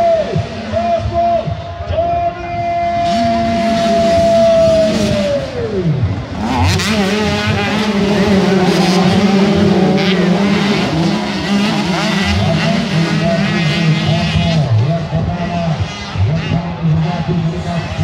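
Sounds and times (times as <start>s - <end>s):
dirt bikes revving: 0.0s - 1.7s, 2.8s - 18.0s.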